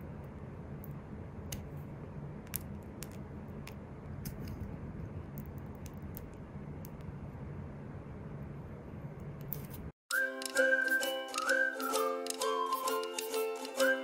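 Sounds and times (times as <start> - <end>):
steady low hum: 0.0 - 9.9.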